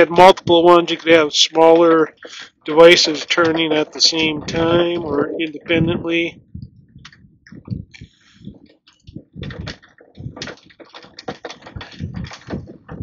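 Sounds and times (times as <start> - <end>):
roller chain clicking and knocking: 8.9 - 13.0.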